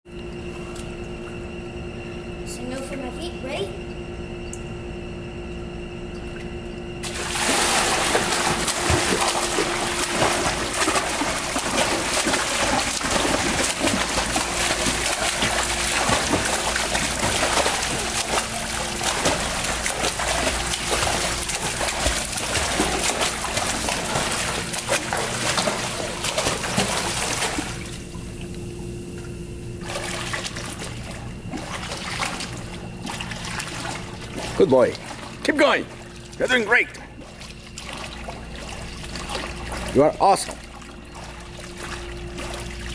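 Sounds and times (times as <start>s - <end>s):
steady low hum: 0.1s - 42.9s
swimmer splashing in pool: 7.0s - 28.4s, 29.8s - 42.9s.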